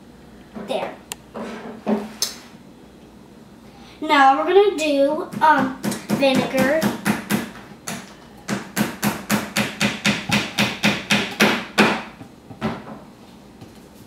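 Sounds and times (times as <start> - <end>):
sharp knocks: 5.3 - 12.9.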